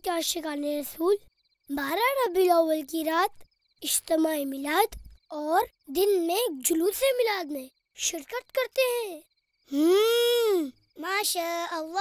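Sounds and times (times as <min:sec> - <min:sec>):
child's wordless exclamation: 0:05.4 - 0:12.0.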